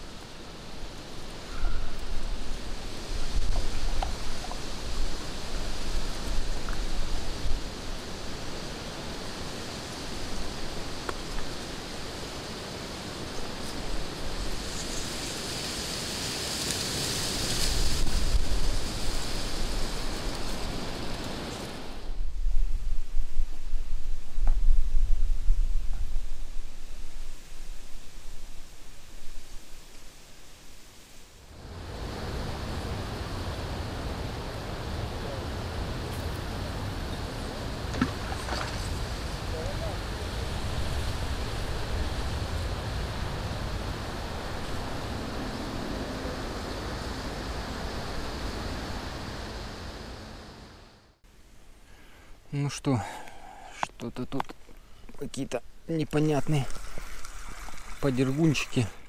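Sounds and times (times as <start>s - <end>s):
low rumble and hiss: 17.5s - 59.0s.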